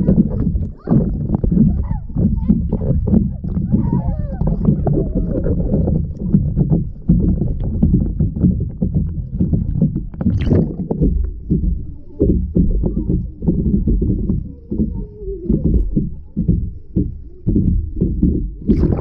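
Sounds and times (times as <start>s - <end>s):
dull knocks of bodies in water: 0.0s - 19.0s
muffled underwater water sloshing: 0.0s - 19.0s.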